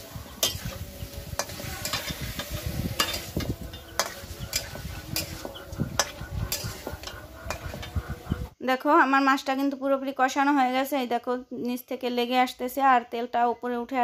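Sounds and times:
fish sizzling in oil: 0:00.0 - 0:07.8
metal spatula scraping a pan: 0:00.0 - 0:08.5.

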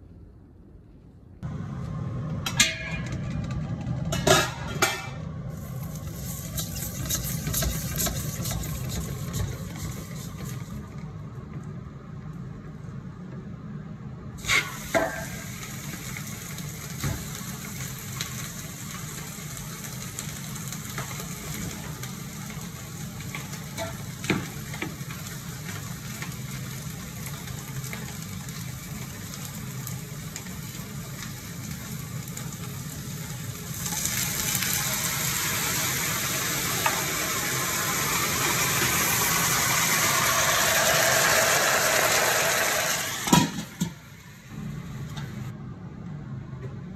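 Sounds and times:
steady low hum: 0:00.0 - 0:15.1
meat sizzling in a pot: 0:04.3 - 0:11.0, 0:14.4 - 0:44.4.

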